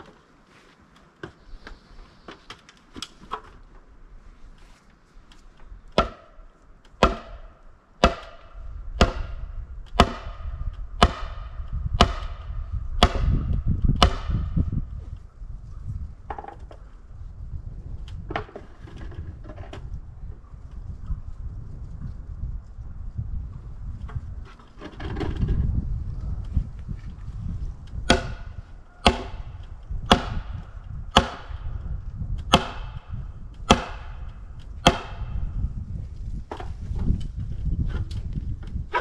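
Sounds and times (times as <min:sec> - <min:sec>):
hammer striking wooden post: 0:05.9 - 0:06.4, 0:07.0 - 0:14.6, 0:28.1 - 0:31.7, 0:32.5 - 0:33.1, 0:33.7 - 0:35.4.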